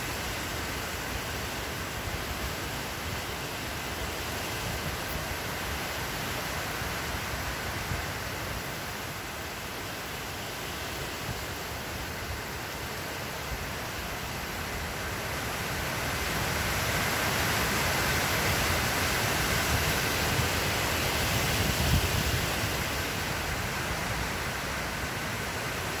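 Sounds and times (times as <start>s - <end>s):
wind noise on microphone: 10.7s - 26.0s.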